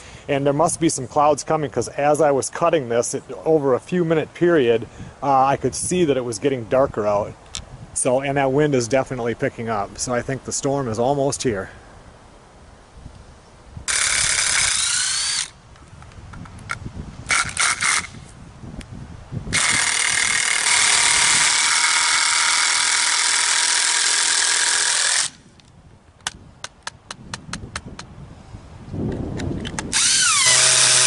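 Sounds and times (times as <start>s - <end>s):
cordless drill whining: 13.9s - 15.6s, 17.3s - 18.2s, 19.5s - 25.5s, 29.8s - 31.0s.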